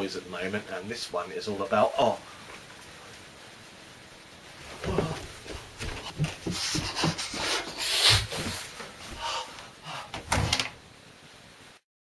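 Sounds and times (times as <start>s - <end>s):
soft footsteps: 4.6s - 9.3s
rubbing against microphone: 5.2s - 9.4s
sharp scrapes: 6.5s - 8.7s.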